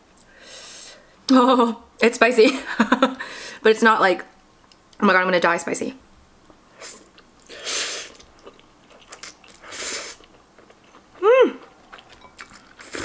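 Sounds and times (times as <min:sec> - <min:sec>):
faint chewing: 0:06.8 - 0:13.0
noodles slurping: 0:06.8 - 0:13.0.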